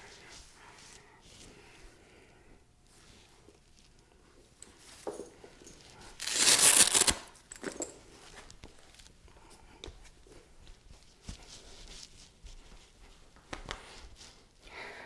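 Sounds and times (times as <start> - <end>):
hook-and-loop fastener ripping: 6.2 - 7.3.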